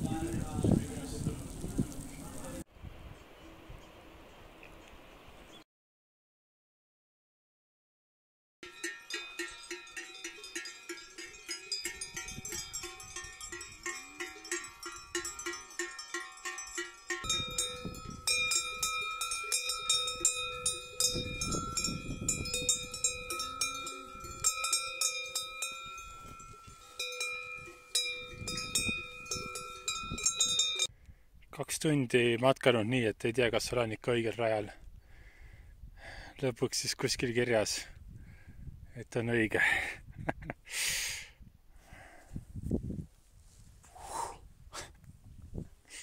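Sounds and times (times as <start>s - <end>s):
cowbells clanking: 8.6s - 30.9s
nearby bell ringing steadily: 8.6s - 30.9s.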